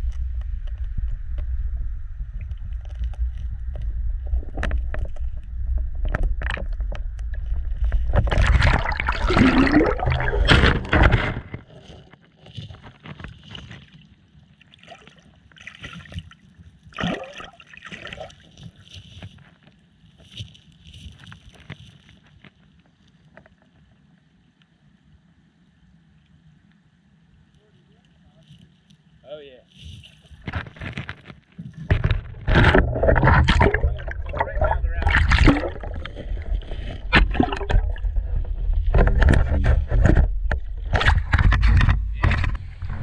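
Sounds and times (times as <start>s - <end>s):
underwater churning: 2.1s - 12.2s, 16.9s - 18.5s, 31.8s - 43.0s.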